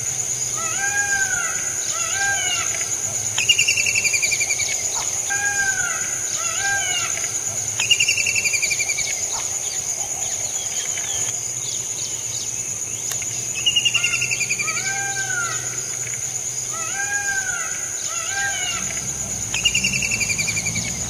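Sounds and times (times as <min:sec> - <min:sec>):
high-pitched insect drone: 0:00.0 - 0:21.0
bird trills: 0:16.8 - 0:21.0
whistled bird notes: 0:18.6 - 0:21.0.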